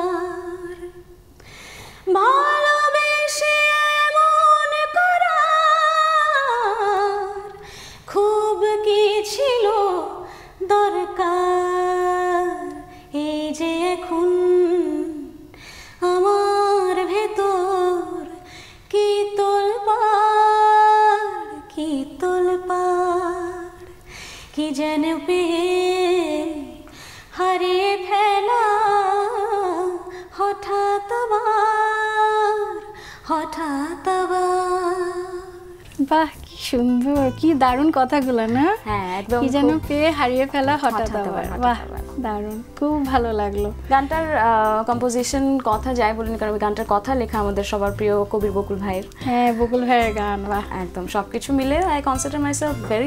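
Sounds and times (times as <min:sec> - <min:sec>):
woman singing unaccompanied: 0:00.0 - 0:01.2, 0:02.1 - 0:23.9, 0:24.6 - 0:53.0
woman breathing: 0:01.3 - 0:02.1, 0:07.6 - 0:08.1, 0:10.2 - 0:10.6, 0:15.5 - 0:16.0, 0:18.4 - 0:18.9, 0:23.9 - 0:24.6, 0:26.8 - 0:27.3, 0:32.9 - 0:33.2.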